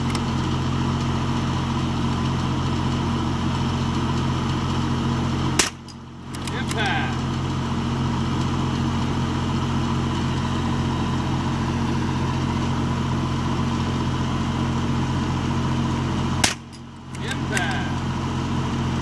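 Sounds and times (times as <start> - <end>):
machine drone hum: 5.5 - 14.1, 14.8 - 19.0.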